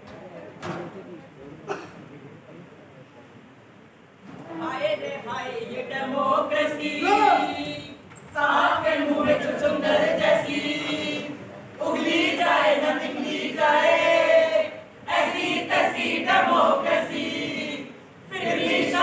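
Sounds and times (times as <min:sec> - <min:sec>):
group singing unaccompanied: 0:04.4 - 0:19.0.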